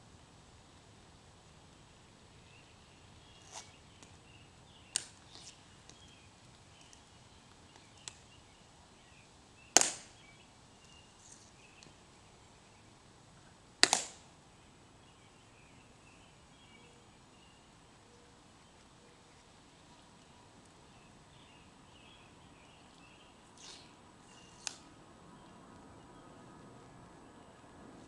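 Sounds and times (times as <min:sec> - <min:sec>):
heel and rifle clicks on stone: 0:13.8 - 0:14.2.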